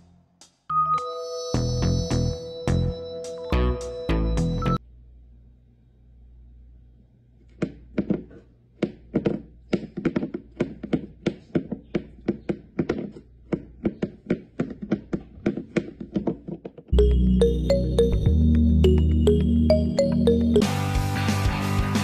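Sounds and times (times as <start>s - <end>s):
loud music: 17.0s - 22.0s.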